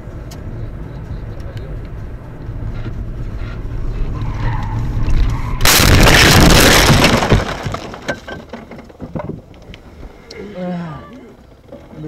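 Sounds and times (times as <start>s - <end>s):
road rumble: 0.0s - 12.0s
loud car crash: 5.0s - 8.8s.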